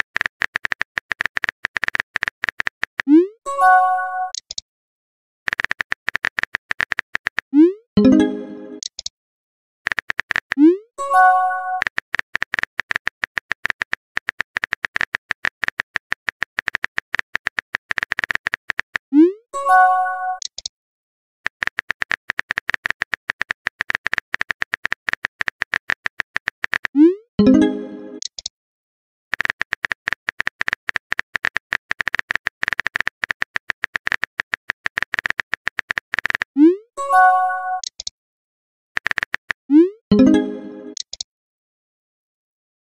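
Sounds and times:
keyboard click sounds: 0:00.0 - 0:03.1, 0:04.3 - 0:04.6, 0:05.5 - 0:09.1, 0:09.9 - 0:10.7, 0:20.4 - 0:20.7, 0:21.5 - 0:28.5, 0:29.3 - 0:36.5, 0:37.8 - 0:38.1, 0:39.0 - 0:41.3.

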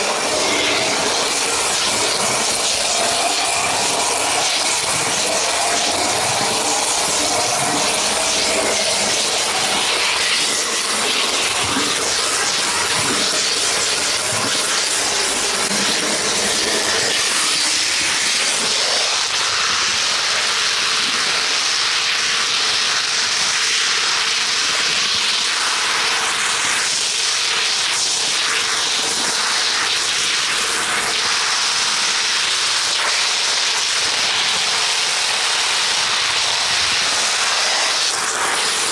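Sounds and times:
model train wheels on rails: 0:00.0 - 0:21.5.

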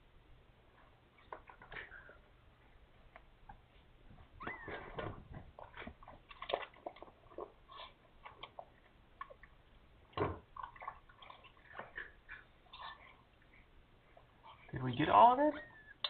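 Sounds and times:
faint falling squeak: 0:04.4 - 0:05.2.

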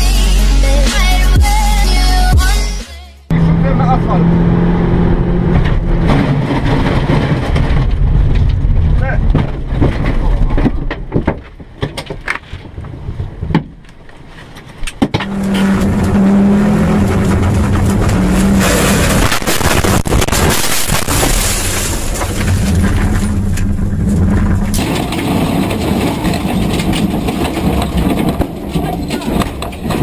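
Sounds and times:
rally car engine revving: 0:03.3 - 0:09.4, 0:15.1 - 0:30.0
another rally car engine: 0:03.3 - 0:10.6, 0:14.8 - 0:30.0.

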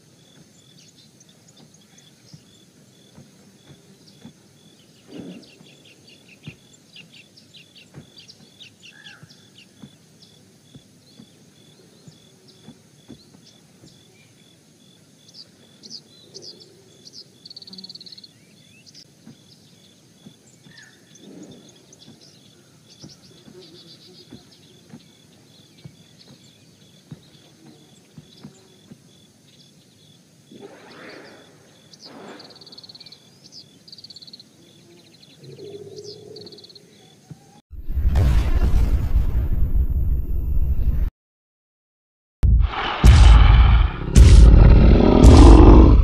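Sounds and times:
small birds chirping: 0:00.0 - 0:37.6
low dull thuds: 0:42.4 - 0:46.0.

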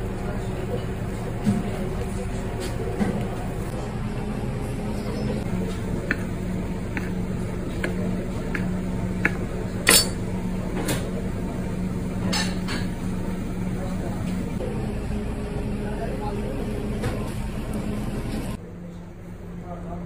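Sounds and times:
steady low hum: 0:00.0 - 0:20.0
knife tapping on wooden cutting board: 0:06.0 - 0:09.5.

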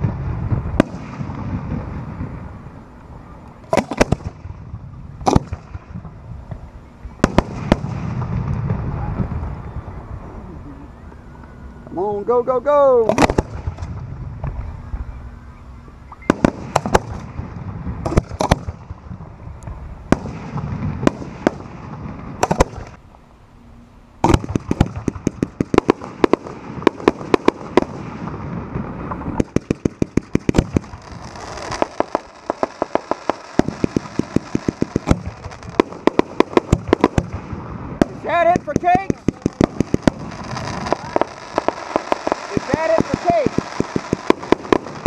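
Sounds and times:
firework tubes firing: 0:00.0 - 0:12.3, 0:12.9 - 0:15.1, 0:16.1 - 0:23.0, 0:24.2 - 0:45.0
firework shells bursting: 0:03.6 - 0:04.6, 0:05.2 - 0:06.6, 0:13.0 - 0:14.6, 0:16.2 - 0:23.0, 0:24.2 - 0:45.0.

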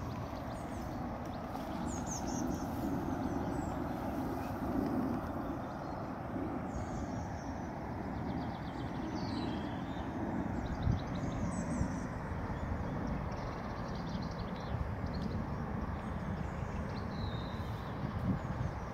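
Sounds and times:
steady low rumble: 0:00.0 - 0:13.8
small birds chirping: 0:00.0 - 0:18.9.

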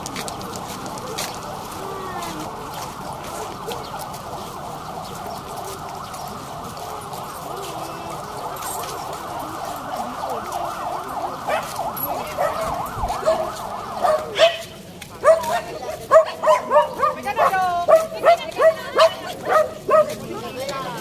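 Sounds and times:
siren wailing: 0:00.0 - 0:14.8.

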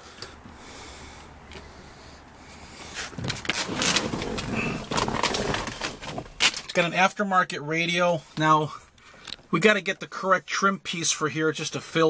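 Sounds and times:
rustling handling noise: 0:02.6 - 0:06.8.

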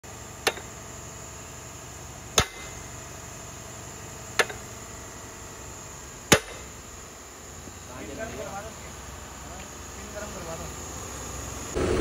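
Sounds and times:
steady background noise: 0:00.0 - 0:12.0
hammer striking metal: 0:00.4 - 0:00.7, 0:02.4 - 0:02.8, 0:04.4 - 0:04.7, 0:06.3 - 0:06.7.

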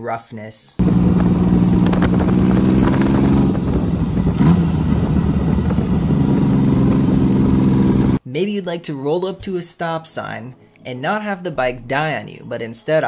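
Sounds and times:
motorcycle engine running: 0:00.8 - 0:08.2.

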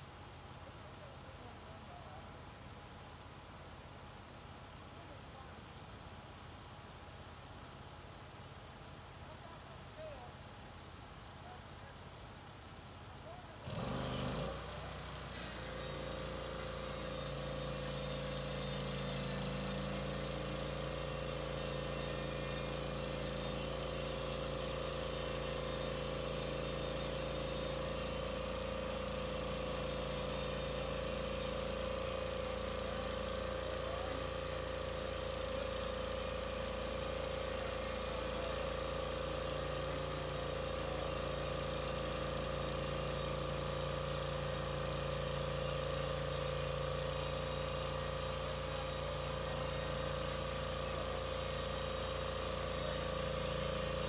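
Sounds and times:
bandsaw mill cutting log: 0:13.6 - 0:54.0.

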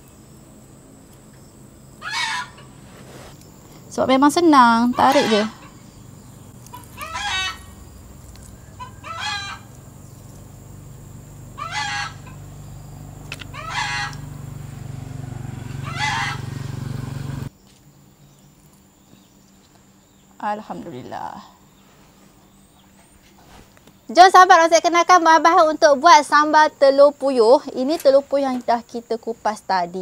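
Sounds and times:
steady low hum: 0:00.0 - 0:24.2
chicken calling: 0:02.0 - 0:03.3, 0:04.6 - 0:17.0.

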